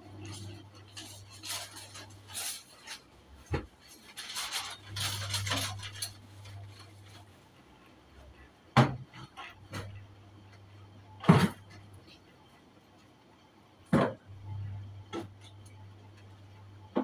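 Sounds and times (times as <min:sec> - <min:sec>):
rustling: 0:00.2 - 0:07.4.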